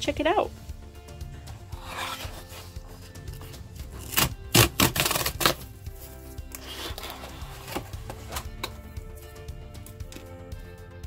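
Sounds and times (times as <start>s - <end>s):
quiet background music: 0.0s - 11.0s
cardboard box scraping and knocking: 1.7s - 5.6s, 6.6s - 8.8s
cardboard box sliding on table: 1.8s - 2.8s, 6.5s - 8.5s.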